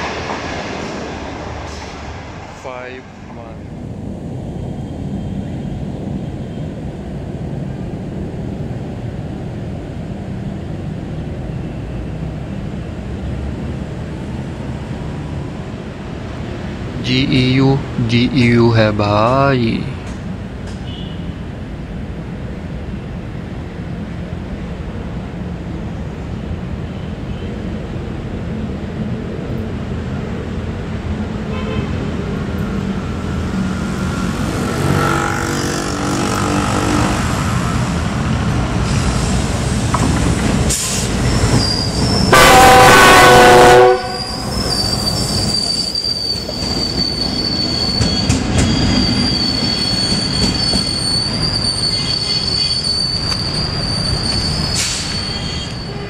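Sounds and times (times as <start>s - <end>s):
diesel locomotive engine: 0.0s - 56.0s
locomotive horn blast: 31.5s - 32.0s, 34.5s - 37.2s, 42.3s - 44.6s
high-pitched wheel squeal: 34.4s - 37.2s, 40.8s - 42.4s, 43.8s - 56.0s.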